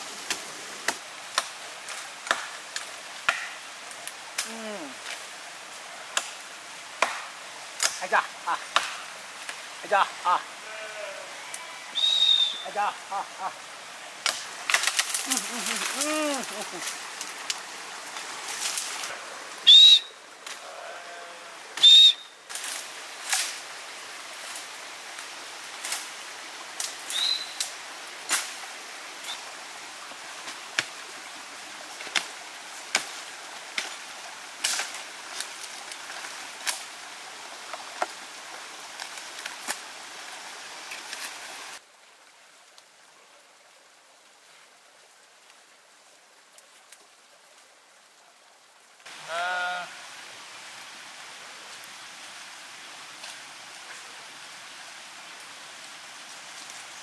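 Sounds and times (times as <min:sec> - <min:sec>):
sizzling hiss: 0:00.0 - 0:41.9.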